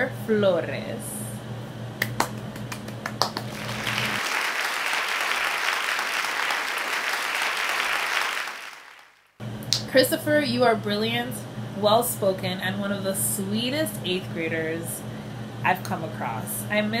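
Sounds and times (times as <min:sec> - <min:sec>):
applause: 0:02.0 - 0:09.4.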